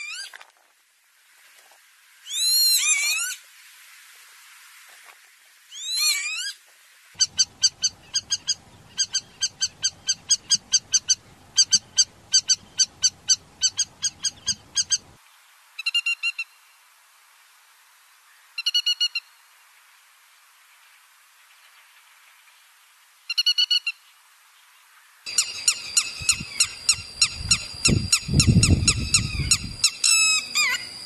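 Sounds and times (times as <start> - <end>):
wheezy sweeping bird call: 7.2 - 15.2, 25.3 - 31.0.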